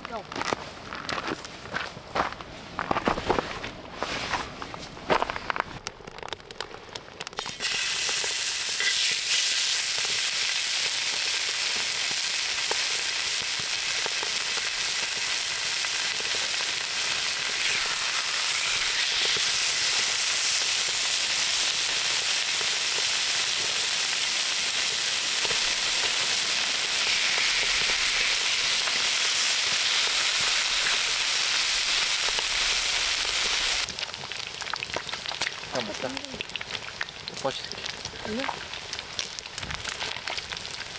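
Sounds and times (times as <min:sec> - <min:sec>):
quiet crackles: 0:00.0 - 0:07.6
meat sizzling on a griddle: 0:07.4 - 0:40.9.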